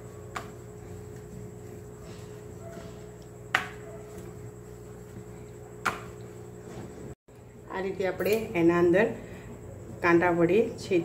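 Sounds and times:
rolling pin knocking on board: 3.5s - 3.8s.

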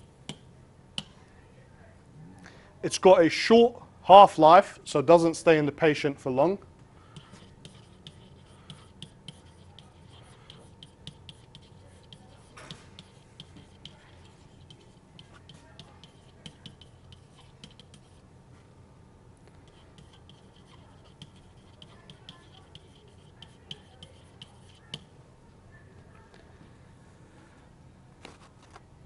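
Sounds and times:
low steady hum: 0.0s - 29.0s
stylus tapping on tablet: 7.2s - 18.1s.

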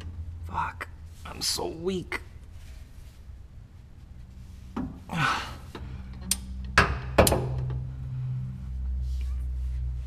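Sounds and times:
person grunting: 5.1s - 5.7s.

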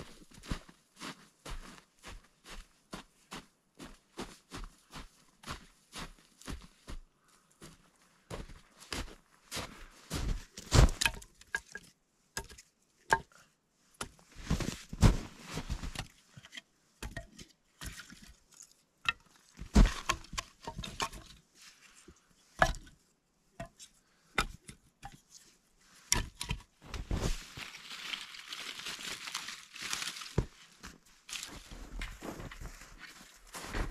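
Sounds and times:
wood crunching: 9.6s - 13.3s, 14.0s - 21.4s, 22.6s - 23.0s, 26.1s - 33.9s
wood knocking and cracking: 10.6s - 13.3s, 19.1s - 21.4s.

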